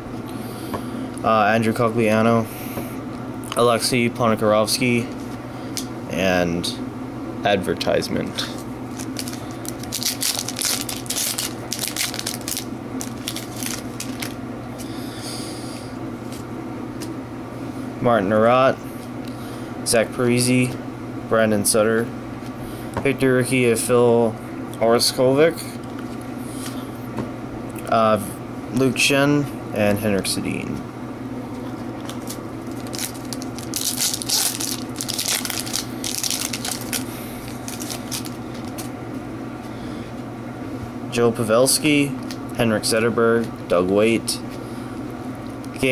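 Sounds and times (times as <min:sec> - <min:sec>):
foil wrapper crinkling: 0:08.9 - 0:14.4, 0:32.0 - 0:38.9.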